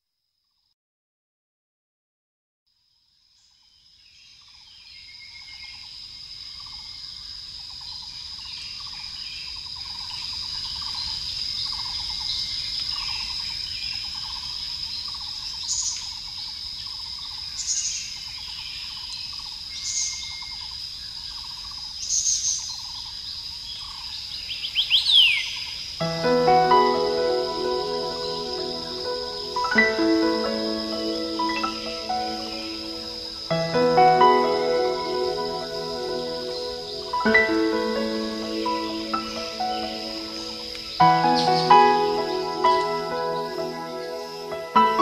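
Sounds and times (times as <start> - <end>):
low pulsed insect call: 2.8 - 45.0
high insect drone: 24.3 - 45.0
sweeping bird notes: 26.0 - 45.0.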